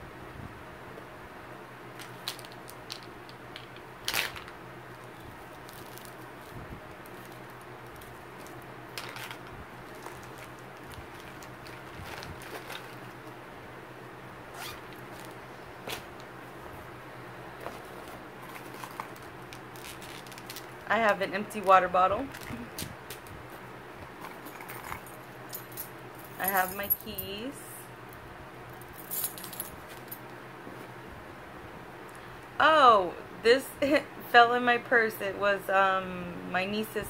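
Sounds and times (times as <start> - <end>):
rummaging through a handbag: 4.0 - 13.4, 14.5 - 16.2, 17.6 - 20.9, 21.5 - 27.3.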